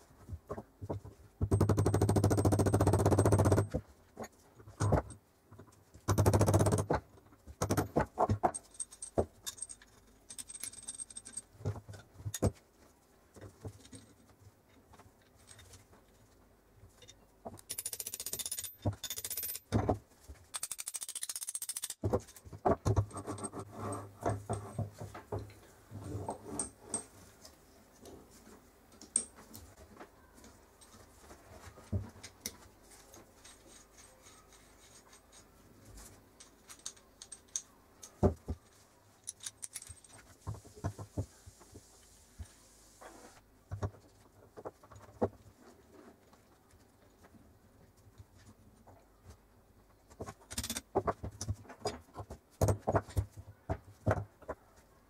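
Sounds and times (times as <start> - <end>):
metal gears clinking and scraping: 39.2 - 40.2.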